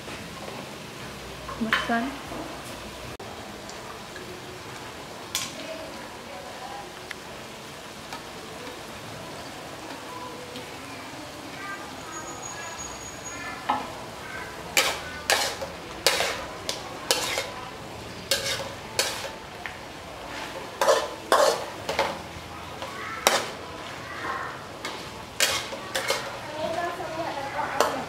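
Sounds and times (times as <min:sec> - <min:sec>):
food sizzling in a wok: 0:00.0 - 0:28.0
spatula scraping a wok: 0:14.4 - 0:19.4, 0:20.2 - 0:28.0.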